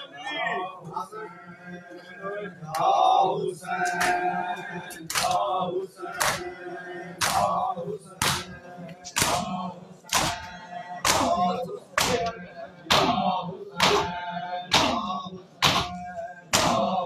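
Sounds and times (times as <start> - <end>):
men chanting a lament: 0.0 - 17.0
hands slapping chests: 3.8 - 4.2, 4.9 - 5.4, 6.2 - 6.5, 7.2 - 7.5, 8.2 - 8.5, 9.1 - 9.5, 10.1 - 11.4, 12.0 - 13.2, 13.8 - 14.1, 14.7 - 15.0, 15.6 - 16.9.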